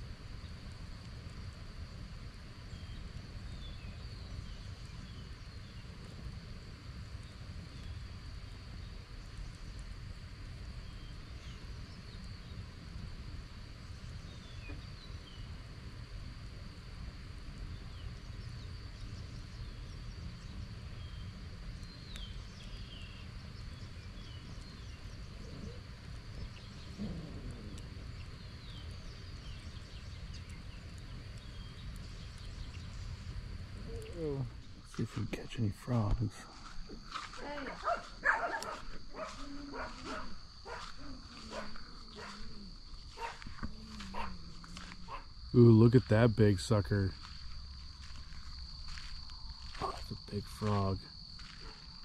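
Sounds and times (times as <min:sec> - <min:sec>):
sharp pops from fire: 0:00.0 - 0:45.4
constant low rumble: 0:00.0 - 0:52.0
high insect drone: 0:00.0 - 0:52.0
wood fire crackling: 0:00.0 - 0:52.0
falling bird calls: 0:17.6 - 0:47.4
high-pitched insect drone: 0:36.4 - 0:38.1, 0:39.0 - 0:52.0.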